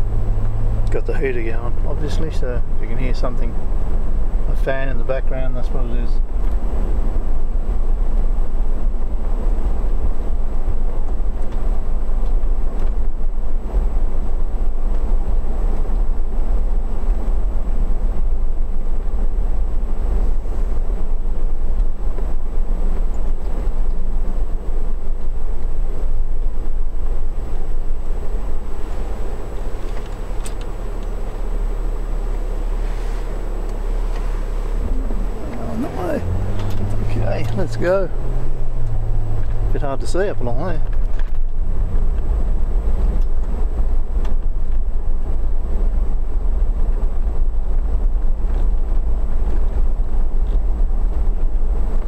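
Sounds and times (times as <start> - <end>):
heater fan blowing: 0.0 - 50.4
car engine and road rumble: 0.0 - 52.0.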